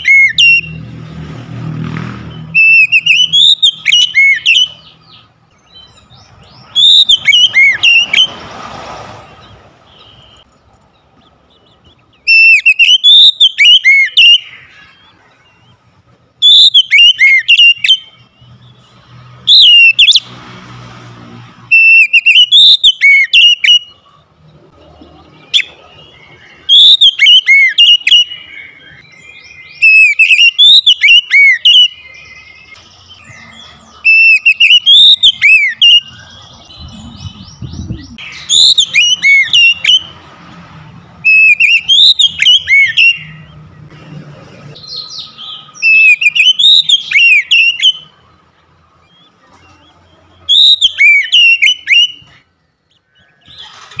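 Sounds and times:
bird singing whistled song: 0:00.0 - 0:00.8, 0:02.3 - 0:08.4, 0:11.5 - 0:15.8, 0:16.4 - 0:20.3, 0:21.7 - 0:24.0, 0:25.3 - 0:40.2, 0:41.2 - 0:43.6, 0:44.8 - 0:48.2, 0:50.4 - 0:53.8.

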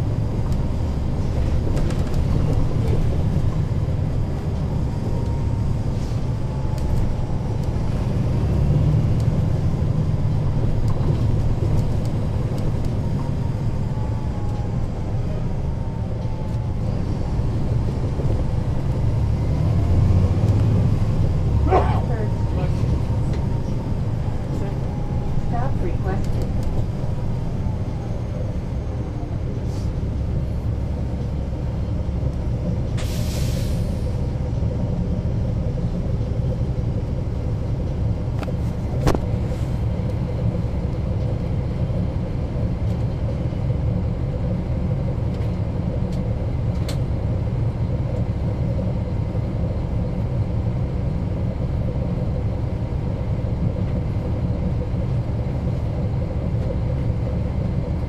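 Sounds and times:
bus diesel engine rumbling: 0:00.0 - 0:58.0
brief air hiss: 0:33.0 - 0:34.0.

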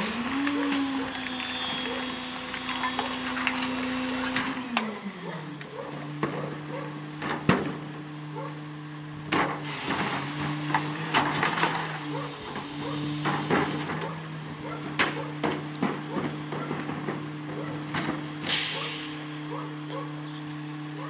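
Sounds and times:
contents tumbling into hopper: 0:09.9 - 0:12.1.

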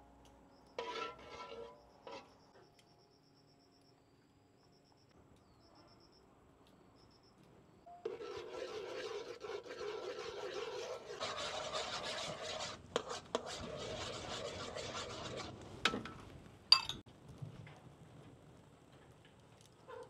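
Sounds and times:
hard objects scraping: 0:00.8 - 0:02.4, 0:08.0 - 0:16.0.

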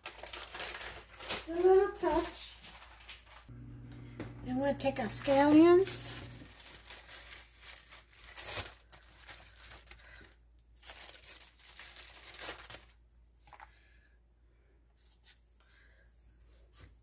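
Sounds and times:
scallions crinkling and tearing: 0:00.0 - 0:02.3, 0:05.0 - 0:13.6.

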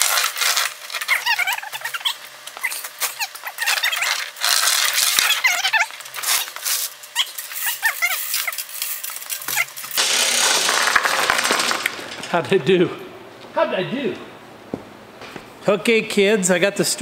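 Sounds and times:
chains and engine block squeaking: 0:01.0 - 0:10.0.

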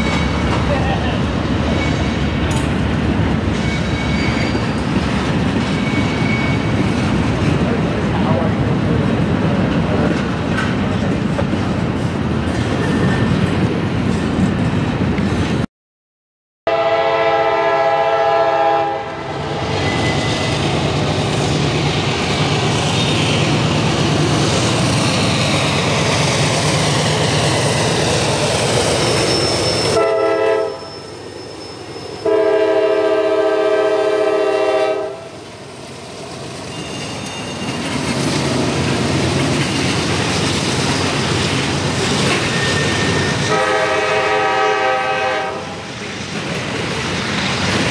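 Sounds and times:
train wheels rolling on rails: 0:00.0 - 0:15.7, 0:18.5 - 0:47.9
locomotive air horn: 0:16.7 - 0:19.3, 0:30.0 - 0:30.9, 0:32.2 - 0:35.3, 0:43.4 - 0:45.8
locomotive engine rumbling: 0:18.4 - 0:47.9.

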